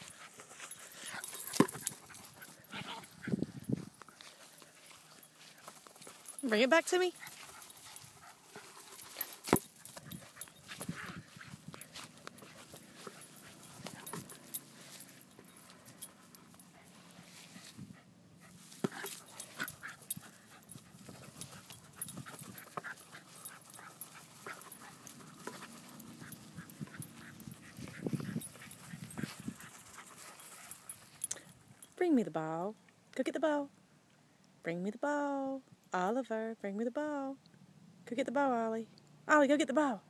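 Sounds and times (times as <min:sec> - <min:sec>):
dog panting: 0:00.0 - 0:03.6, 0:07.1 - 0:31.8.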